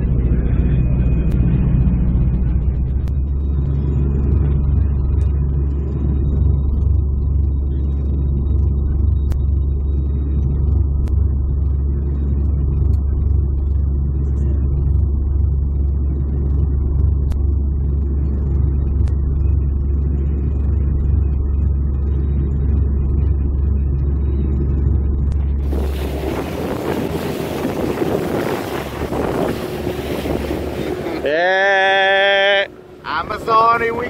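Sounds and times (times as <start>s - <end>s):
wind on microphone: 0.0s - 9.0s, 25.1s - 31.3s
aircraft engines droning: 0.0s - 34.0s
boat spraying over choppy water: 0.0s - 34.0s.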